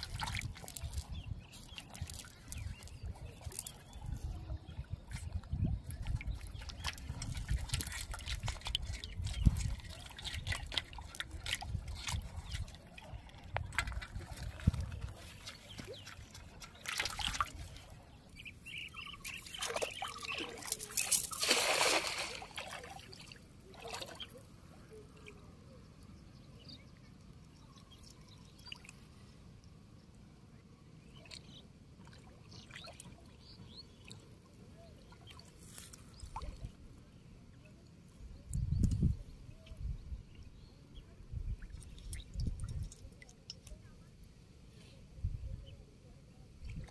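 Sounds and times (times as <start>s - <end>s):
water splashing and sloshing: 0.0s - 25.4s, 31.1s - 37.0s.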